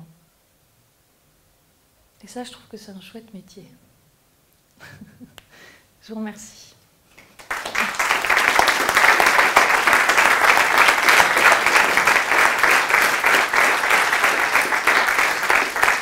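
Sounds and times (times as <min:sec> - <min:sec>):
audience applauding: 0:07.2 - 0:16.0.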